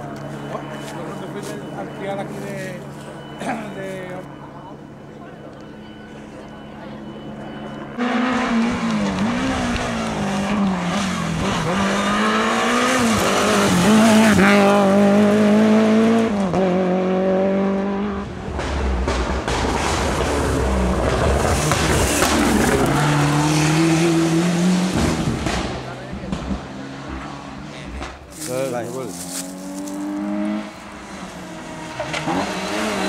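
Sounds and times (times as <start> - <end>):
deep rough car engine: 4.3 - 33.0
rally car engine revving high: 7.1 - 33.0.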